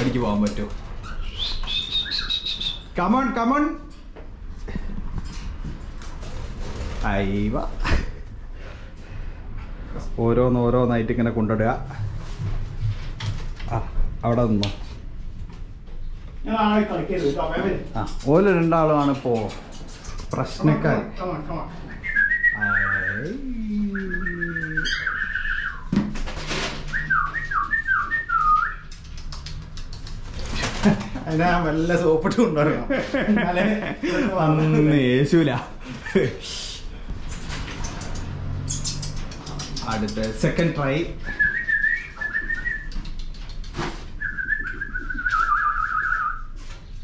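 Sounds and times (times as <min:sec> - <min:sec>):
high wavering whistling: 0:21.9 - 0:25.9, 0:26.9 - 0:28.9, 0:44.2 - 0:46.4.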